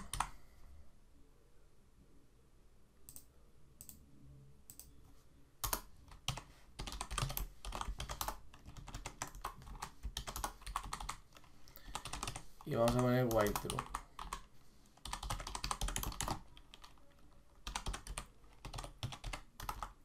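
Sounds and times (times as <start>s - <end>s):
typing on keyboard: 0.0s - 0.4s, 5.6s - 20.0s.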